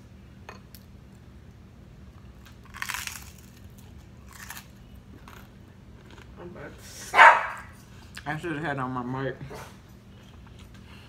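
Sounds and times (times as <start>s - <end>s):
crunchy bites into fried chicken: 2.3s - 5.4s.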